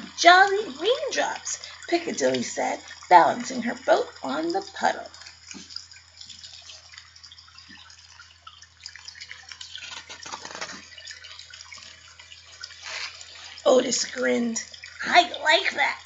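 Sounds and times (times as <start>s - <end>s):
low hum and hiss: 0.0s - 16.0s
book pages turning: 9.8s - 10.9s.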